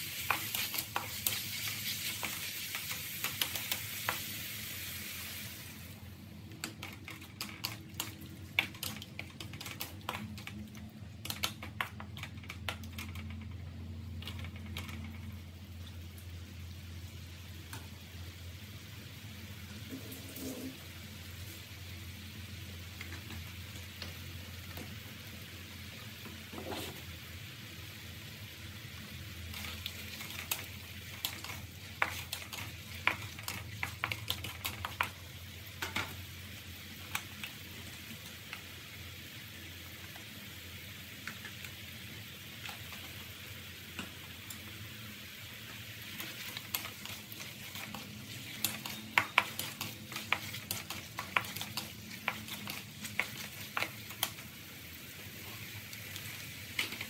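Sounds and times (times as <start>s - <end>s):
food sizzling in a wok: 0.0s - 6.4s, 15.6s - 57.0s.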